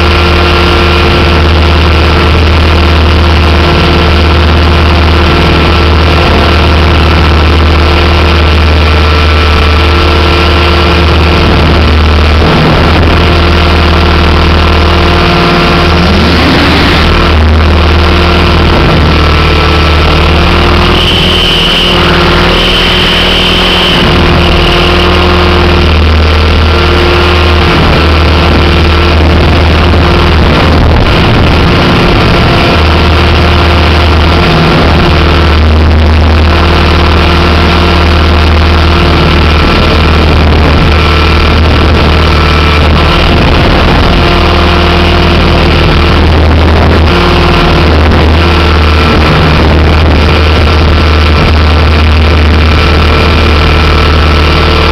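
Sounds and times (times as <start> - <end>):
helicopter motor and rotor whine: 0.0 - 54.9.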